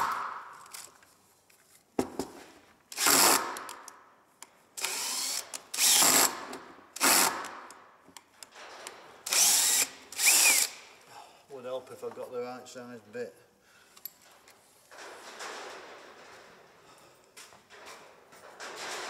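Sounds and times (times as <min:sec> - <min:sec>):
cordless drill driving screws: 0:02.9 - 0:03.7, 0:04.8 - 0:07.5, 0:09.3 - 0:10.8.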